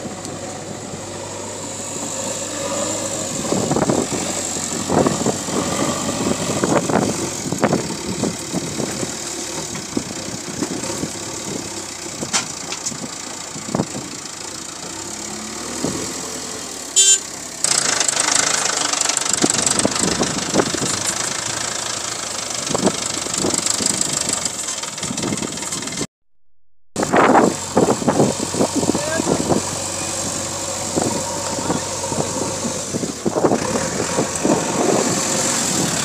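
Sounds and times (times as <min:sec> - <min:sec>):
diesel engines running: 0:00.0 - 0:26.1, 0:27.0 - 0:36.0
loud high tone: 0:17.0 - 0:17.2.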